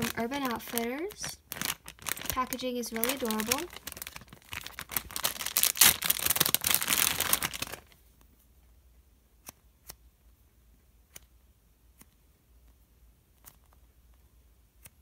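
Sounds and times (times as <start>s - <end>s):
plastic pouch crinkling: 0.0s - 8.0s.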